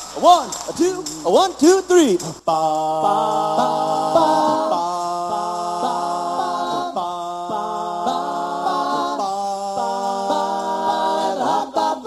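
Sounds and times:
a cappella group singing harmony: 0:02.4 - 0:12.0.

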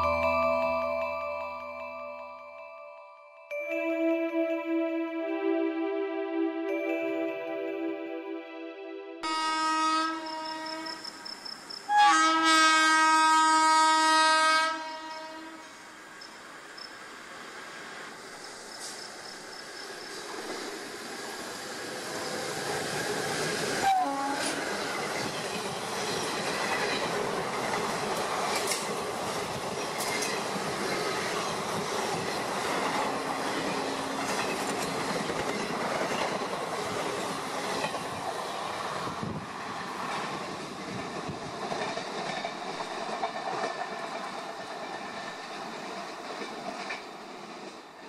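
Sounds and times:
train wheels rumbling on rails: 0:17.7 - 0:48.0.

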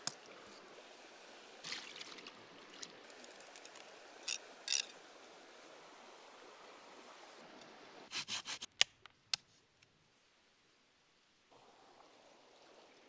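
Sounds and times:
river running over stones: 0:00.0 - 0:08.1.

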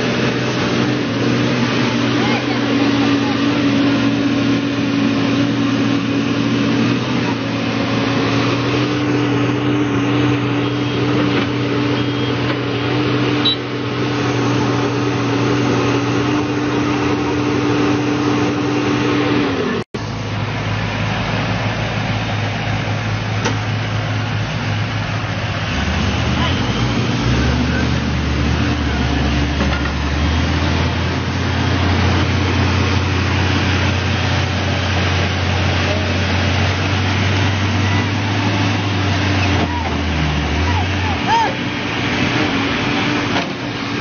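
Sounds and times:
diesel engine droning: 0:00.0 - 0:44.0
other steady engine: 0:00.0 - 0:44.0.

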